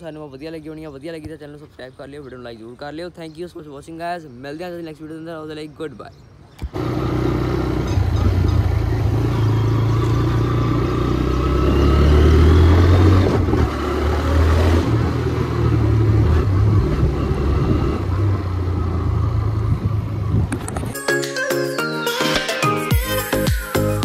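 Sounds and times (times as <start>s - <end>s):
motorcycle engine running: 6.7s - 11.7s.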